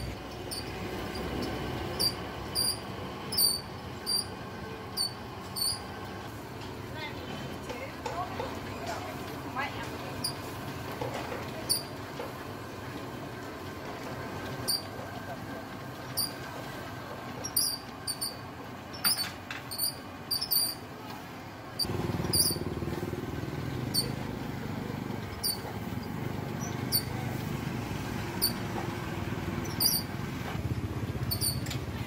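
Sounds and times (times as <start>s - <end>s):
high-pitched squeaks: 0.0s - 5.9s, 17.5s - 18.4s, 19.0s - 20.8s, 21.8s - 22.7s, 23.9s - 24.2s, 25.3s - 27.4s, 28.3s - 28.9s, 29.6s - 30.1s, 31.2s - 31.7s.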